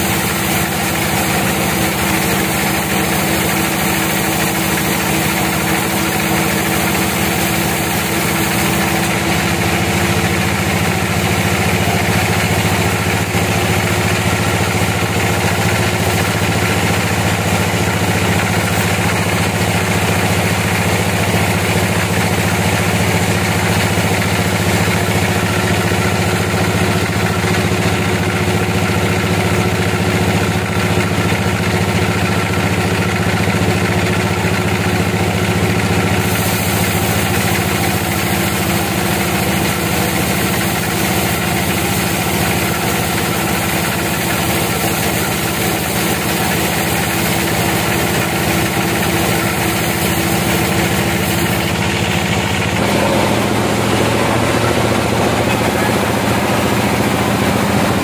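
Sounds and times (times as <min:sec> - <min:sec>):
bandsaw mill drive humming: 0:00.0 - 0:31.0, 0:31.8 - 0:58.0
saw blade hissing through log: 0:36.1 - 0:45.8.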